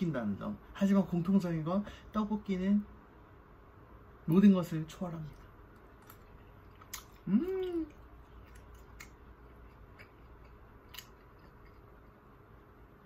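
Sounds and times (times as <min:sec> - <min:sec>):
soft chewing clicks: 0:05.2 - 0:12.8
person humming: 0:07.2 - 0:08.0.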